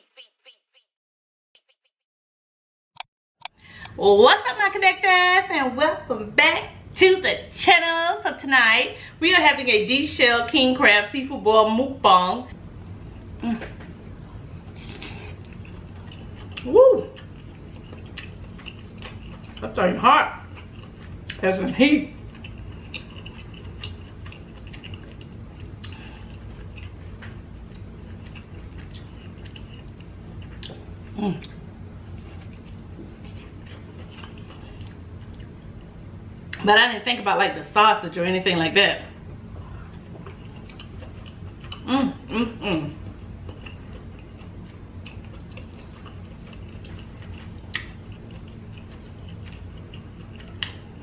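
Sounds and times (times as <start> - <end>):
faint steady low hum: 3.6 - 51.0
chewing and lip smacks: 14.6 - 19.6, 20.4 - 21.4, 22.2 - 31.6, 32.2 - 35.6, 39.7 - 41.9, 43.4 - 51.0.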